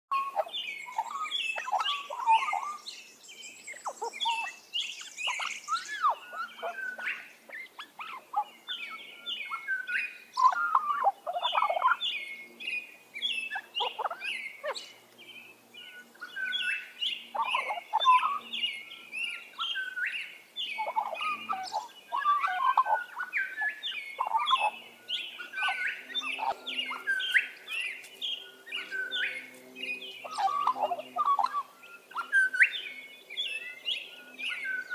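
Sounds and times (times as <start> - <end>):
magpie warbling song: 0.1 - 2.9, 3.7 - 15.0, 15.8 - 34.9.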